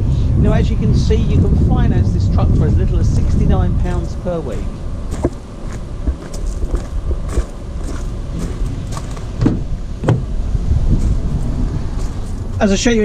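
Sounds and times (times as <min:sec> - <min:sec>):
low rumble: 0:00.0 - 0:13.0
footsteps on gravel: 0:03.9 - 0:09.4, 0:10.9 - 0:12.5
van door opening clunks: 0:09.4 - 0:10.3.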